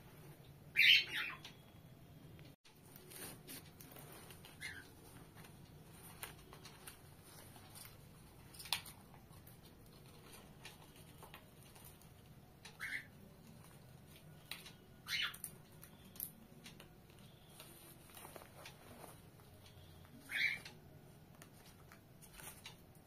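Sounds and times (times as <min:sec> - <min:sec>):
bird chirps: 0:00.7 - 0:01.8, 0:12.7 - 0:13.5, 0:14.3 - 0:16.4, 0:19.6 - 0:20.8.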